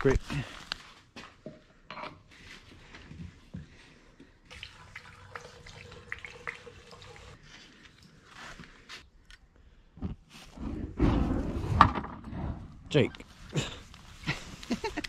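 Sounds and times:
gasoline trickling through funnel: 0:04.5 - 0:08.4.

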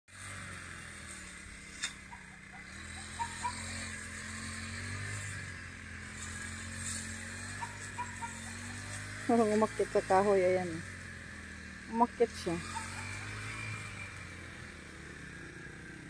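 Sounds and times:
small engine humming: 0:00.1 - 0:16.0.

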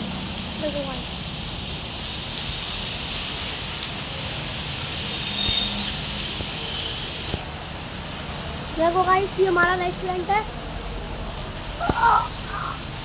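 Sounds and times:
heavy rain on pavement and cars: 0:00.0 - 0:13.0.

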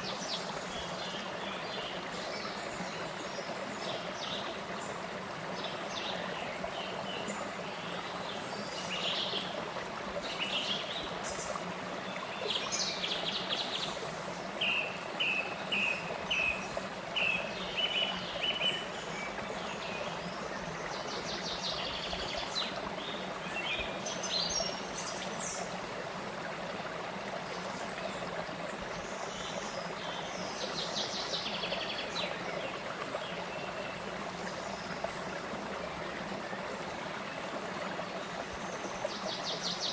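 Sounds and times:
stream flowing over rocks: 0:00.0 - 0:39.9.

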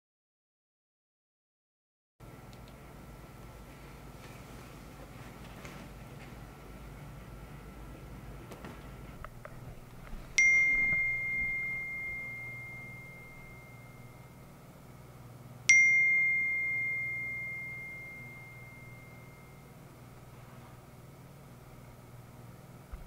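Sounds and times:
phone notification chime: 0:10.4 - 0:14.2.

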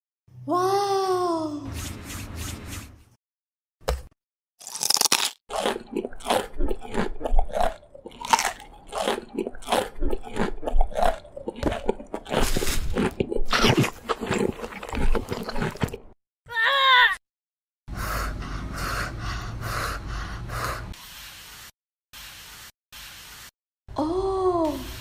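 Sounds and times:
crunchy bites and chewing: 0:04.6 - 0:16.2.

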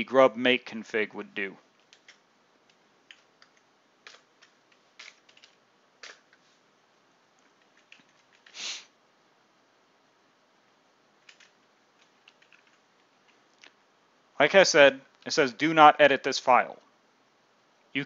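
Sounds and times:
keyboard keystrokes: 0:01.8 - 0:06.3, 0:07.6 - 0:08.6, 0:11.2 - 0:13.4.

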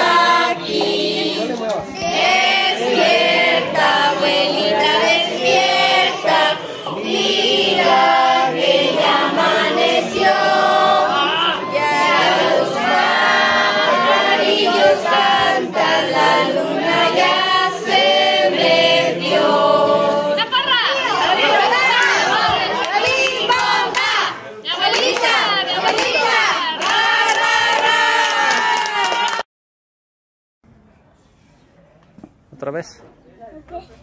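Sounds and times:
group singing unaccompanied: 0:00.0 - 0:28.8.

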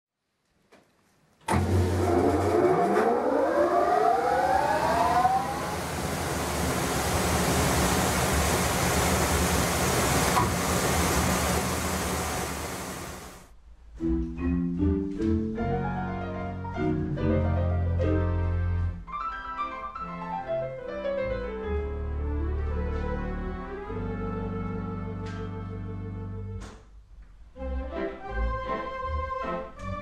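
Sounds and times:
organ blower whine and rush: 0:01.5 - 0:13.5
organ playing: 0:21.6 - 0:26.6.

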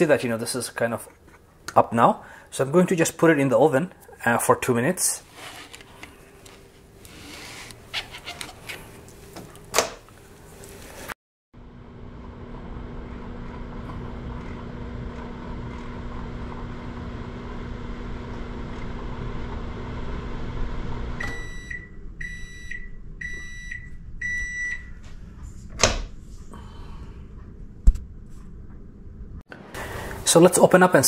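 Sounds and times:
microwave oven humming: 0:11.6 - 0:30.2
microwave beeps: 0:21.2 - 0:25.0.

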